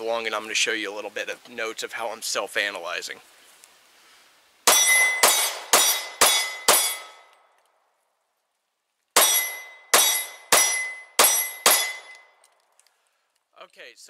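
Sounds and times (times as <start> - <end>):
pistol shots: 4.7 - 7.3, 9.2 - 12.3.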